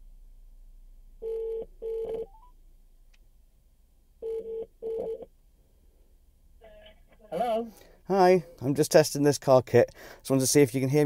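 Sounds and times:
phone ringing tone: 1.2s - 2.5s, 4.2s - 5.3s.

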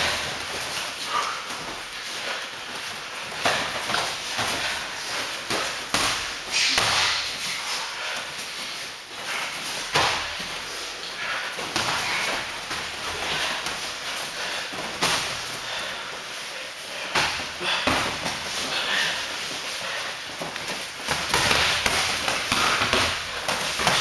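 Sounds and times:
boxing gloves and kicks thudding: 3.4s - 7.4s, 9.8s - 10.6s, 11.6s - 13.8s, 17.1s - 18.7s, 21.0s - 24.0s.

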